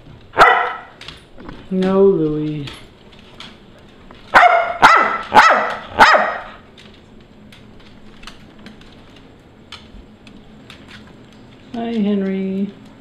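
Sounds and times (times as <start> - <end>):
small dog barking: 0.4 - 1.0, 4.3 - 6.6.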